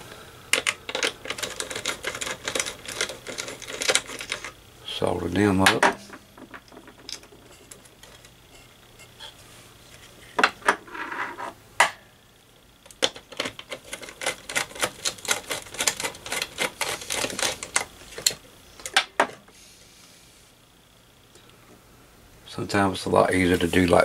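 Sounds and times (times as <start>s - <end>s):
fast clicking and rattling: 0.5s - 4.6s, 12.9s - 19.0s.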